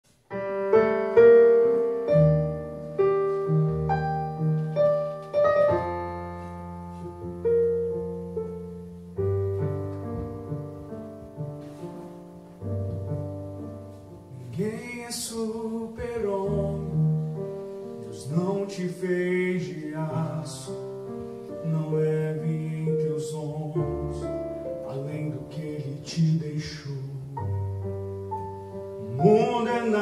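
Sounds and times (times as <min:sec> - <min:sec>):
piano chords with low bass notes: 0:00.2 - 0:30.0
man singing: 0:14.3 - 0:17.4, 0:18.0 - 0:27.8, 0:29.0 - 0:30.0.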